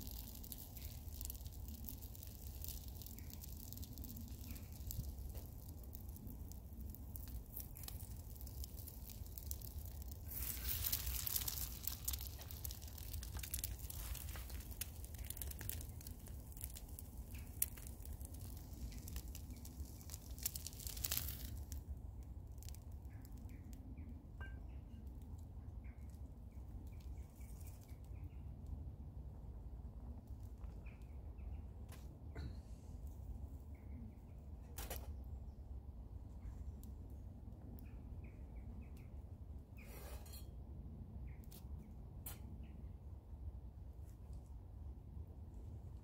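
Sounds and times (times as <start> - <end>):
egg sizzling in a frying pan: 0.0 - 21.8
small birds chirping: 0.0 - 21.8, 25.7 - 28.6, 37.6 - 39.2
wood fire crackling: 0.0 - 24.2.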